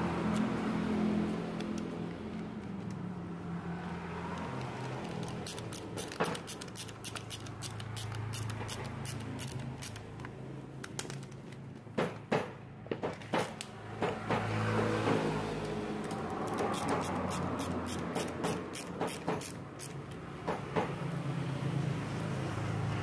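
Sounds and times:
screwdriver clicking: 0:04.4 - 0:10.1, 0:16.0 - 0:20.2.

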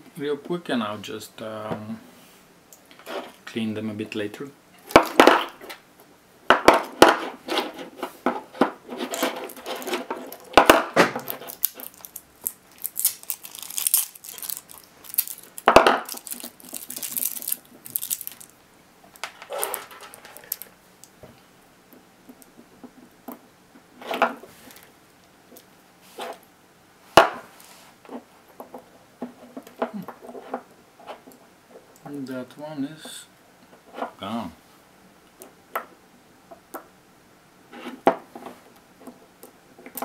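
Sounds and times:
wrapping crinkling: 0:09.0 - 0:10.6, 0:11.2 - 0:21.1
metal cells clinking on desk: 0:19.4 - 0:20.7.

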